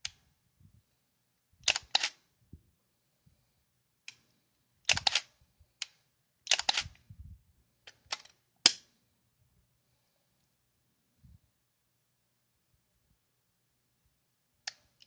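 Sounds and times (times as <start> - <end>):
camera mechanism clicking: 1.6 - 2.2, 4.9 - 5.3, 6.5 - 7.0.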